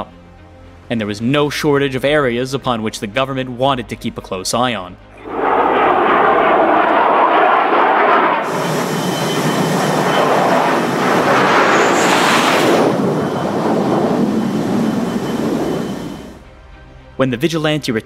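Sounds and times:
jet rushing on approach: 5.2 - 16.4.

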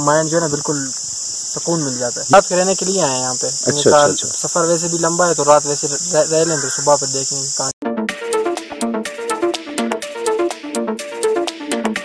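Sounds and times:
electronic music with steady beat: 7.8 - 12.0.

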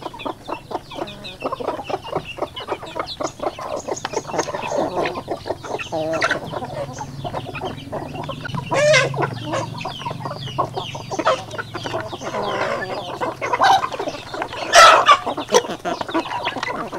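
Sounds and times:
beaks pecking at feed trough: 0.0 - 16.9
chickens clucking and calling: 0.0 - 16.9.

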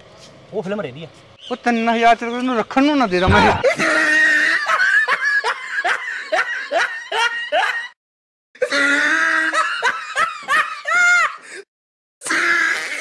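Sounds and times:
person laughing heartily: 3.4 - 8.0, 8.6 - 11.6.

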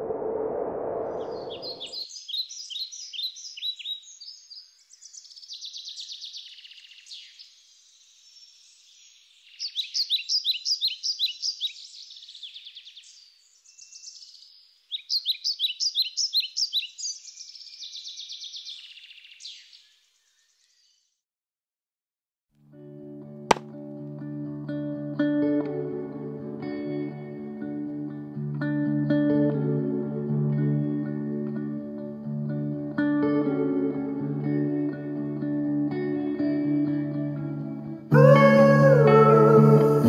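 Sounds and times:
birds chirping and trilling: 1.0 - 21.2.

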